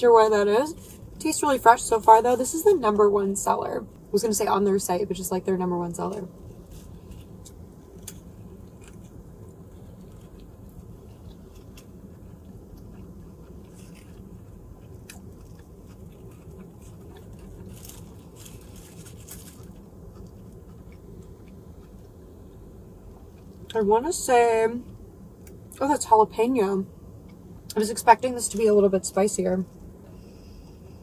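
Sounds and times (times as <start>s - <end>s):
steady low hum: 0.0s - 31.0s
person chewing food: 6.5s - 23.7s
small clicks and crackles: 6.6s - 22.1s.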